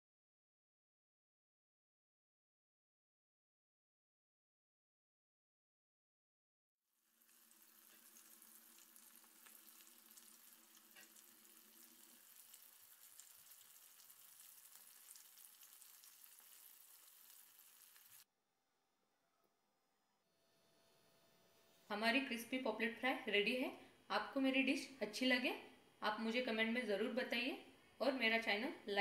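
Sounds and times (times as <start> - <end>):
oil sizzling and crackling: 7.0 - 18.3.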